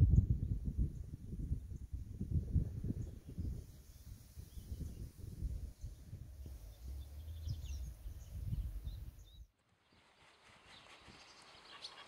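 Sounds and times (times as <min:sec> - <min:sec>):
small birds chirping: 0:02.9 - 0:12.0
low uneven rumble: 0:04.2 - 0:09.5.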